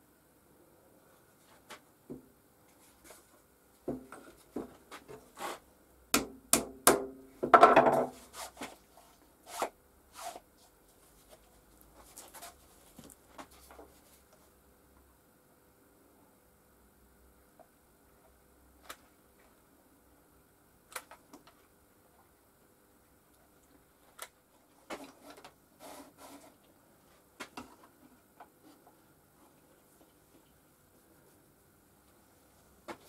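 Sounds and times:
sharp wood-on-wood knocks: 6.2 - 8.1.

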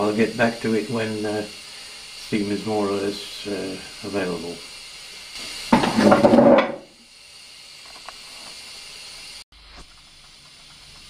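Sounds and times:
gas burner hissing: 0.0 - 11.0.

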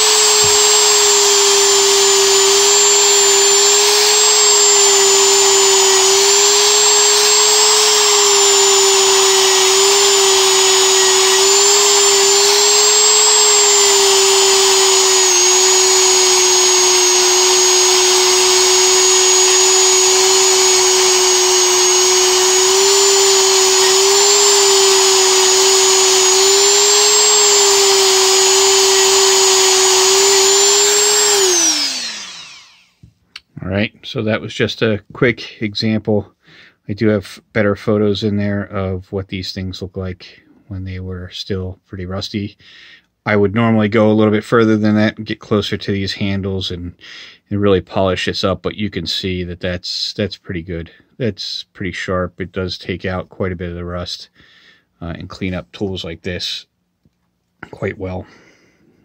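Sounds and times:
rotary tool whining: 0.0 - 33.0.

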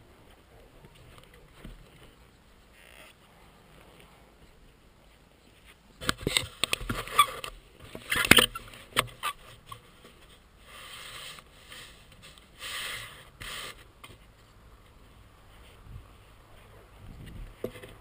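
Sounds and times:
hiss of rubbing on microphone: 9.4 - 17.6.

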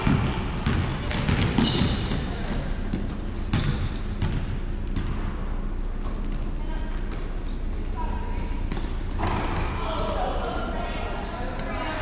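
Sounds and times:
basketball bouncing on hardwood: 0.0 - 2.2
sneaker squeaks: 0.1 - 5.3, 6.0 - 12.0.

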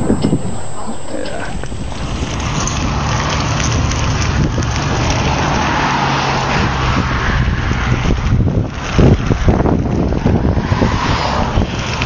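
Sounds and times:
low hum: 0.0 - 8.6
wind and rain on microphone: 0.0 - 12.0.

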